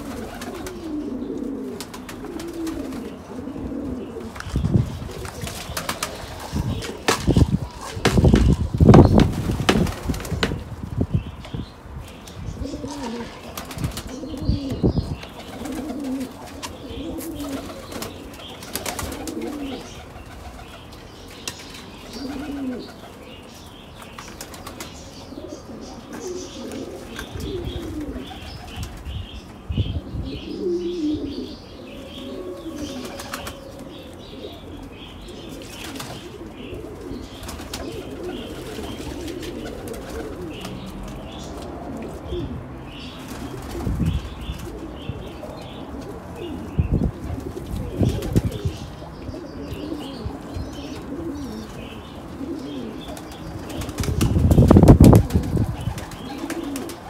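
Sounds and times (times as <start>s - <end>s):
pigeons cooing: 0.0s - 57.0s
small birds chirping: 0.0s - 57.0s
wings flapping: 4.4s - 10.6s, 13.4s - 14.3s, 15.4s - 20.7s, 32.8s - 33.6s, 37.4s - 41.2s, 53.1s - 57.0s.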